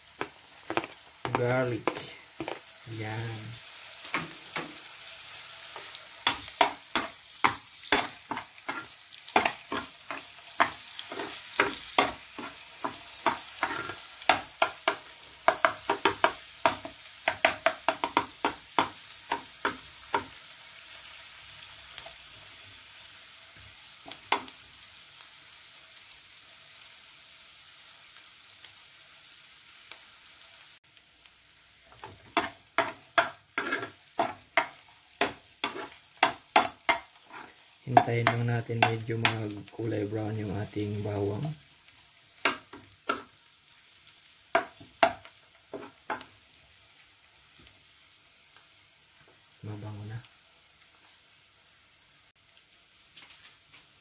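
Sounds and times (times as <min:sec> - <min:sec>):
garlic sizzling in oil: 0:00.0 - 0:54.0
utensil scraping pan: 0:05.8 - 0:15.0, 0:32.0 - 0:39.5.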